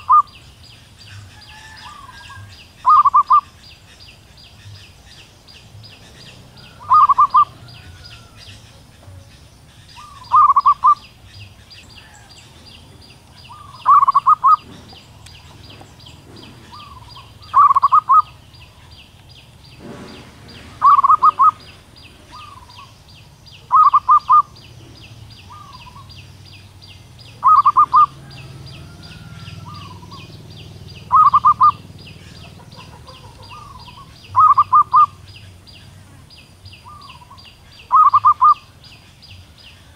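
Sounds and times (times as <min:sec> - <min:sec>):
dove calling: 0:00.0 - 0:39.9
soft dove coo: 0:19.9 - 0:22.9.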